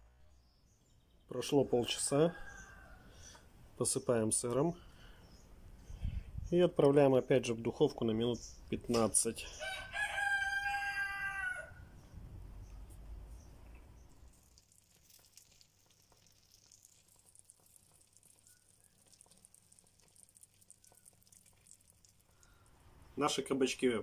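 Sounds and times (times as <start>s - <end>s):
rooster crowing: 2.1s - 3.2s, 9.6s - 12.0s.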